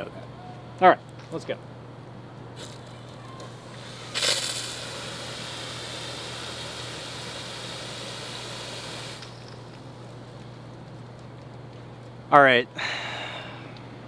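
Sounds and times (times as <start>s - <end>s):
water spraying from wand: 3.8s - 9.4s.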